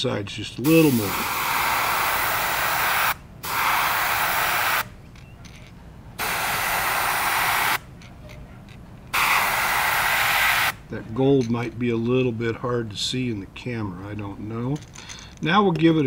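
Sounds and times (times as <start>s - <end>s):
airbrush spraying hiss: 0.6s - 4.9s, 6.2s - 7.8s, 9.1s - 10.8s.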